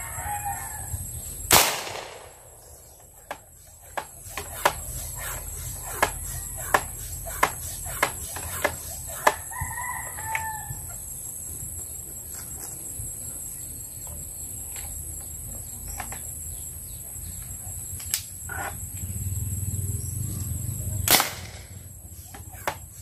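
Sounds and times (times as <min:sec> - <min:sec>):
rooster crowing: 0:00.0 - 0:01.2, 0:09.0 - 0:11.0
steady high-pitched hum: 0:00.0 - 0:23.0.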